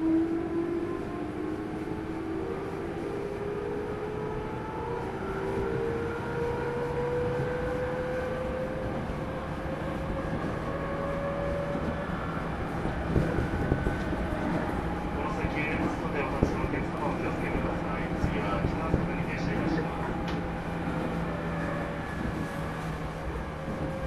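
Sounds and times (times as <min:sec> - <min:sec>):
wheels rumbling on rail: 0:00.0 - 0:24.0.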